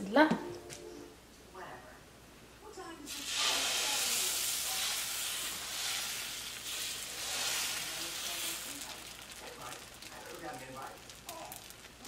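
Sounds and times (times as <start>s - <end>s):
batter sizzling on griddle: 3.1s - 12.0s.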